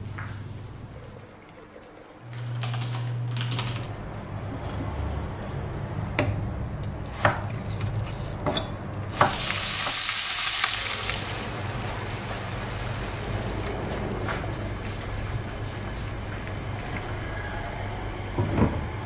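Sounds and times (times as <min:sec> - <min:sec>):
meat sizzling in a pan: 0:09.2 - 0:13.9.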